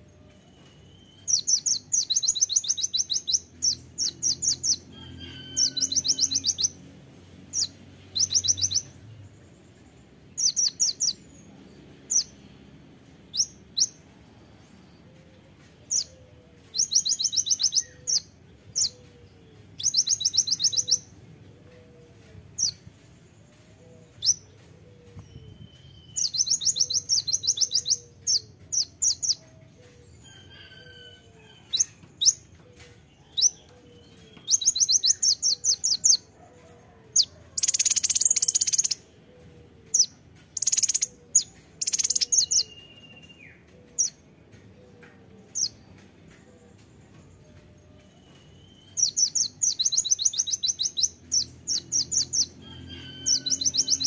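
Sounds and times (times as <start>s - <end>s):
bird song rapid bursts: 37.6s - 39.0s, 40.6s - 43.4s
sharp bird chirps: 40.6s - 41.2s.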